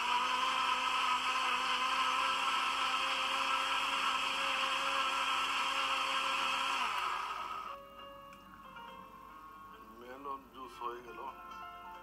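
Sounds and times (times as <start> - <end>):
blender running: 0.0 - 7.8.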